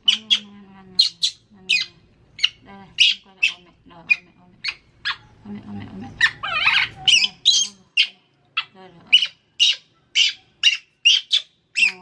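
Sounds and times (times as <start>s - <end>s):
baby monkey shrill cries: 0.0s - 5.3s, 6.2s - 12.0s.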